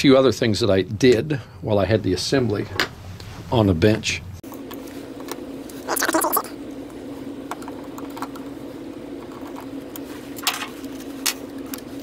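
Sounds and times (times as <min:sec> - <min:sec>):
steady low hum: 0:04.2 - 0:12.0.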